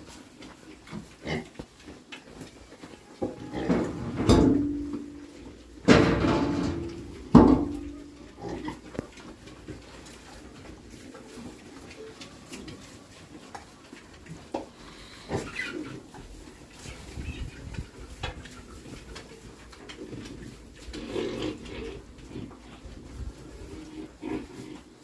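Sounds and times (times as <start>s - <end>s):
pig grunts: 1.2s - 1.5s, 7.8s - 8.9s, 20.1s - 22.8s, 23.8s - 24.9s
pigs calling loudly: 7.6s - 9.0s, 20.0s - 22.8s, 23.7s - 25.0s.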